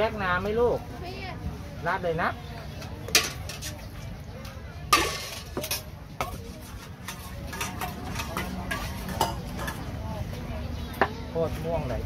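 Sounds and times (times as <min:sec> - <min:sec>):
utensils and containers knocking: 0:04.9 - 0:09.9.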